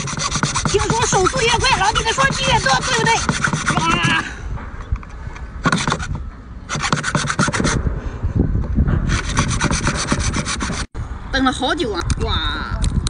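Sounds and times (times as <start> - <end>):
cord rasping on lobster shell: 0.0 - 4.2, 6.7 - 7.8, 9.1 - 10.9.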